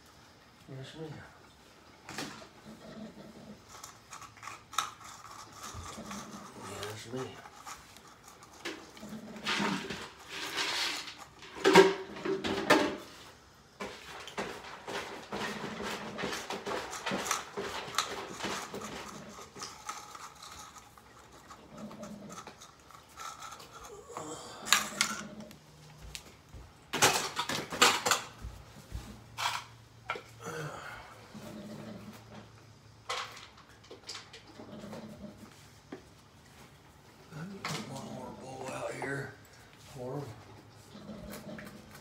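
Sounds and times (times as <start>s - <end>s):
cats chewing and licking: 2.3s - 11.7s, 13.8s - 26.9s, 33.7s - 42.0s
tins and bowls clattering: 3.7s - 13.1s, 13.8s - 25.4s, 26.9s - 28.4s.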